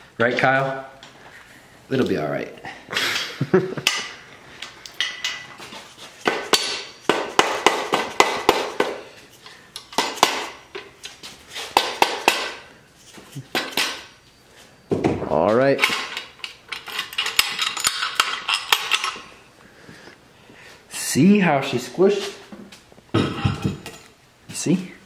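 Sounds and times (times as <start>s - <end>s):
metal clinking: 15.8s - 19.3s, 23.2s - 24.2s.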